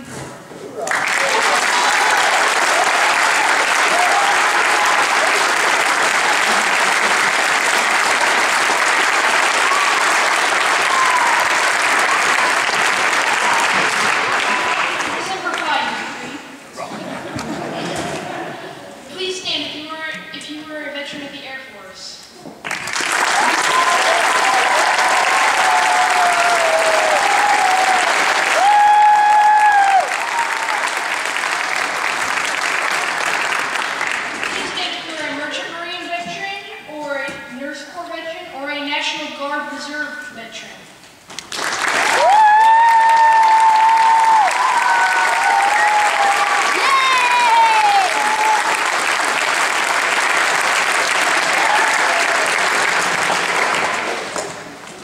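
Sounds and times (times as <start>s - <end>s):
audience applauding: 0.8s - 15.7s, 22.6s - 34.9s, 41.4s - 55.0s.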